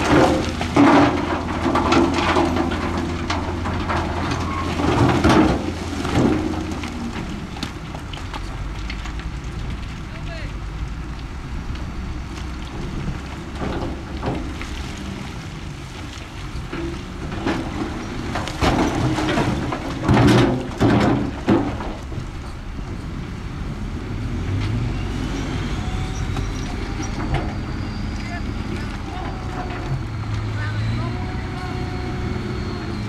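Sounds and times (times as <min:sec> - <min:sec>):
metal clanks and clatters: 0:00.0 - 0:10.0, 0:12.6 - 0:15.3, 0:16.2 - 0:23.1
low engine rumble: 0:00.0 - 0:33.0.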